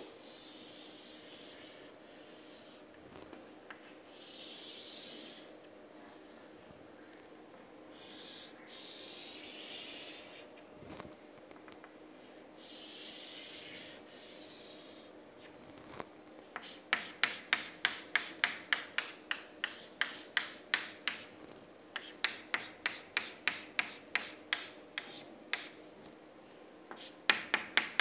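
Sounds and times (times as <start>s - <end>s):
chalk scraping on blackboard: 16.6s - 21.3s, 22.0s - 25.7s, 26.9s - 28.0s.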